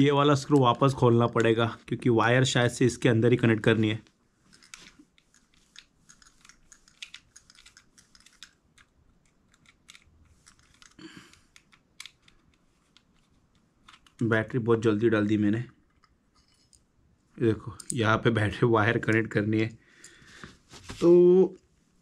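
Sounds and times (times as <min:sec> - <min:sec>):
screwdriver clicking and scraping: 0:04.5 - 0:14.2.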